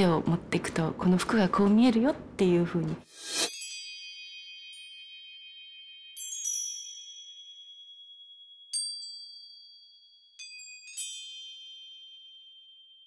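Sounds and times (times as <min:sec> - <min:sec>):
high glassy chime tones: 0:03.1 - 0:13.0.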